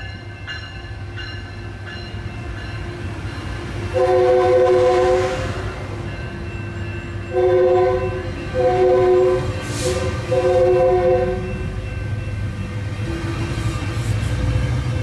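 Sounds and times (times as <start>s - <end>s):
train passing with rolling rumble: 0.0s - 15.0s
train chord horn blasts: 3.9s - 5.8s, 7.3s - 11.8s.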